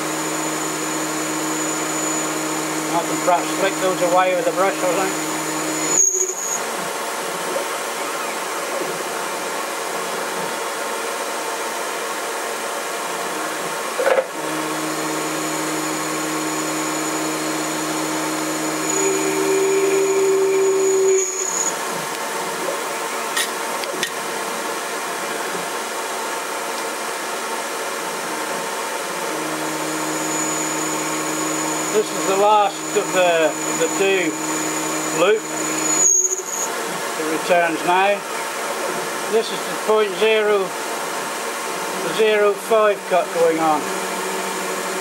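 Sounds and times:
steady pitched tones: 0.0s - 6.0s, 29.3s - 36.4s
lathe mechanical whirr: 0.0s - 45.0s.

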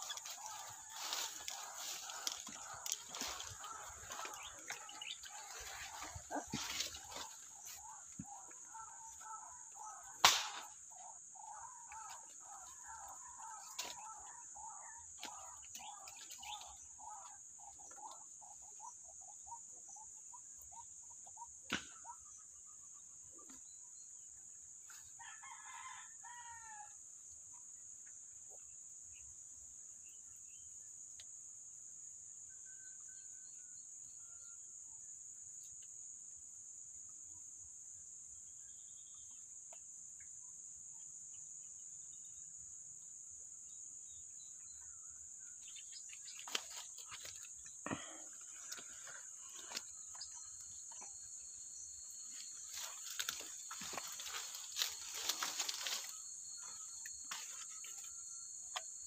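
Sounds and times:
rooster crowing: 25.2s - 27.0s.

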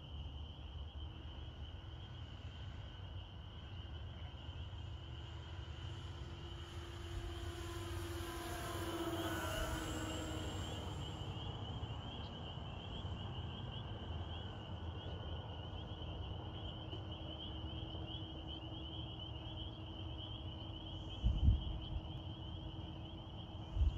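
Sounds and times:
insect chirring: 3.0s - 23.9s
model plane motors whining: 5.4s - 12.3s.

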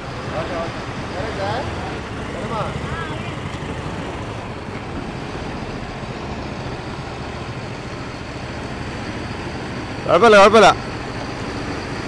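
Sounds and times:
truck diesel engine running: 0.0s - 12.0s.

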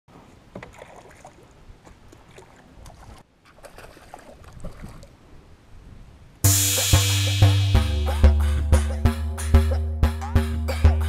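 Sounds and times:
water noise: 0.1s - 5.6s
faint wind: 0.1s - 6.5s.

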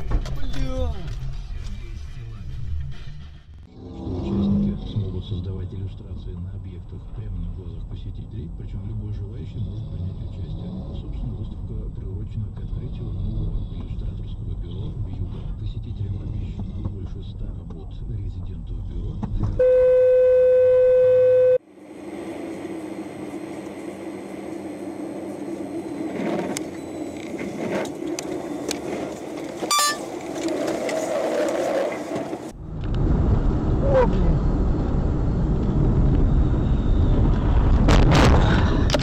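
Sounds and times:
car road and engine noise: 0.0s - 39.0s
loud steady tone: 19.6s - 21.8s, 29.6s - 30.1s.

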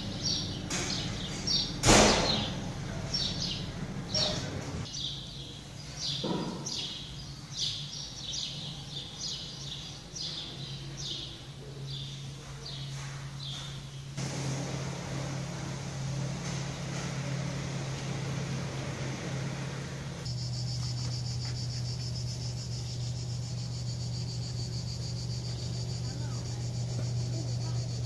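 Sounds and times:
constant low hum: 0.0s - 5.0s, 7.9s - 28.0s
cicadas shrilling: 0.0s - 5.4s, 13.5s - 28.0s.

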